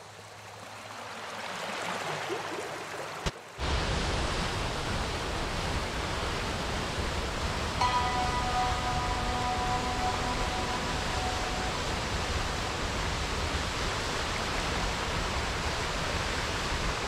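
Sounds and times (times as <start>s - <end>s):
waterfall rushing: 3.6s - 17.0s.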